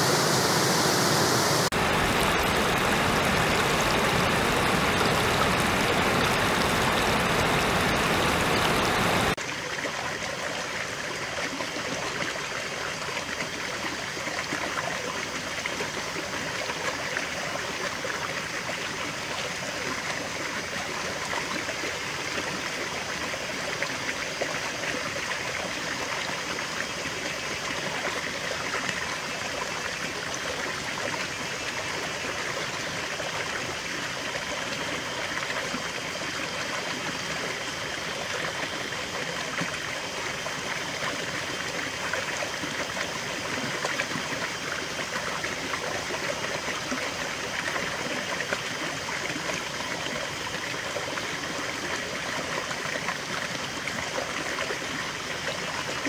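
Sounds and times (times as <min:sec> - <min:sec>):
creek water flowing over stones: 0:00.0 - 0:56.0.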